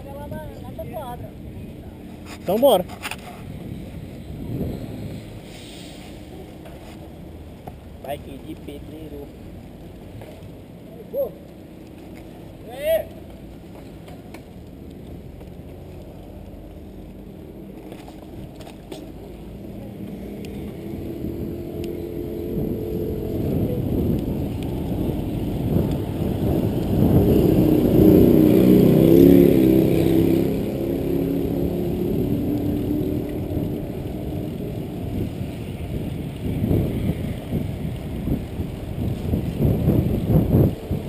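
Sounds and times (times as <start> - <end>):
bicycle tyres on pavement: 0.0 - 41.0
wind buffeting microphone: 3.2 - 5.5, 19.4 - 41.0.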